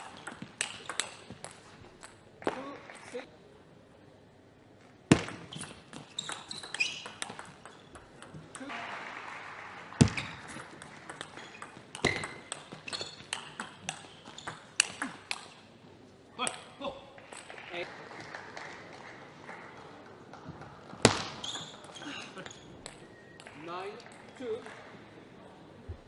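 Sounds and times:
crowd noise: 6.1 - 26.0.

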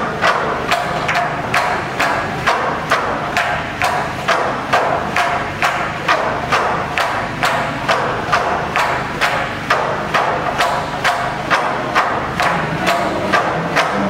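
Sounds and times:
bamboo poles clapping together: 0.0 - 14.0.

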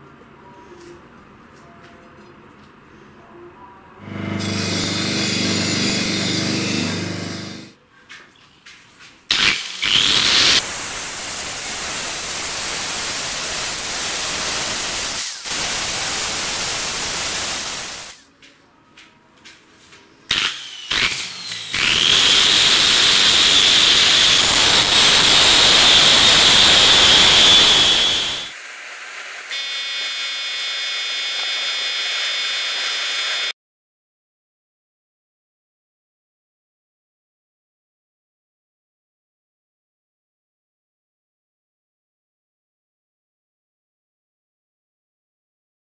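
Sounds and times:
angle grinder grinding steel: 4.0 - 7.8, 9.3 - 18.2, 20.3 - 28.5, 29.2 - 33.5
steady tones: 22.4 - 28.5.

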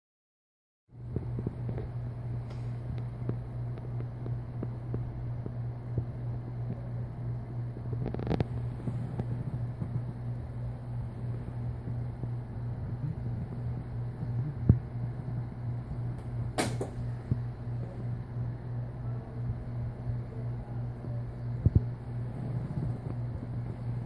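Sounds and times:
steady low hum: 0.9 - 24.0
sharp knock: 16.6 - 17.0.

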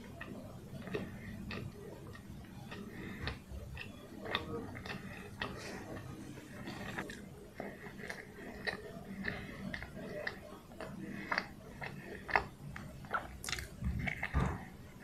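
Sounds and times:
person chewing: 0.0 - 15.0
wet mouth clicks and smacks: 8.0 - 14.5.

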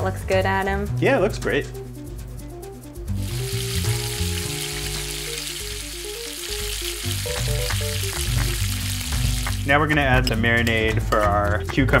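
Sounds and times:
background music: 0.0 - 12.0
batter sizzling in hot oil: 3.1 - 9.8.

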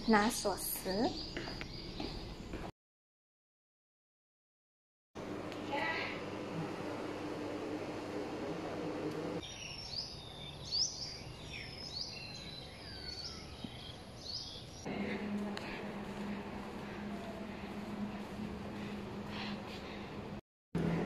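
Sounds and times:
birds chirping: 0.1 - 2.7, 9.3 - 20.2
low room hum: 5.2 - 10.0, 14.6 - 21.0.

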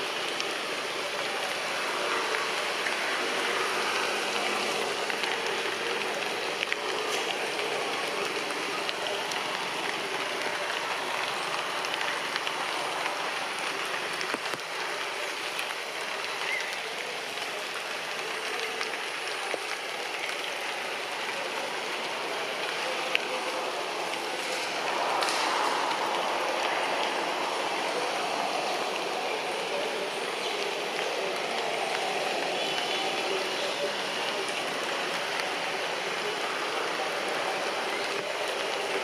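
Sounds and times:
rain pattering on leaves: 0.0 - 39.0.

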